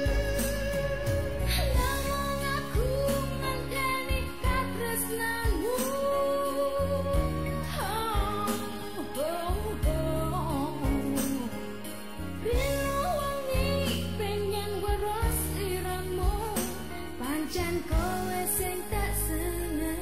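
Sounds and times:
pulsing bass line: 0.0 - 4.7, 9.5 - 11.2
person singing: 0.0 - 20.0.

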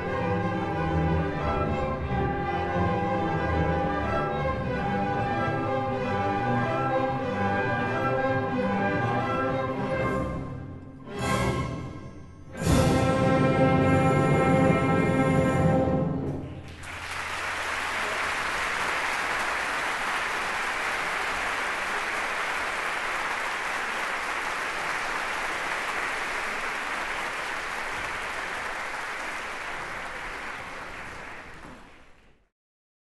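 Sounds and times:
audience applause: 16.6 - 32.5.

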